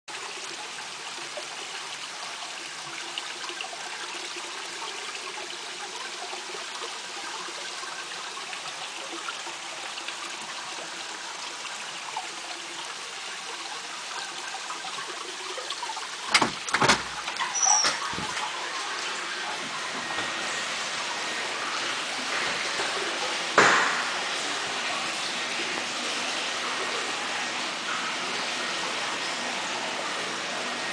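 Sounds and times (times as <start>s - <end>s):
water trickling into bath: 0.2s - 30.9s
sharp knocks and clatter: 16.3s - 18.4s, 23.6s - 24.2s
door opening: 16.3s - 18.7s, 19.4s - 20.7s.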